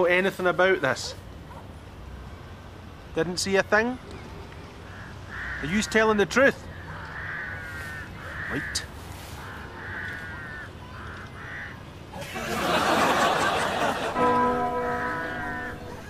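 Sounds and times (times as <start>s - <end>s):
crows cawing: 4.8s - 11.9s, 13.2s - 16.0s
held chord: 13.3s - 16.0s.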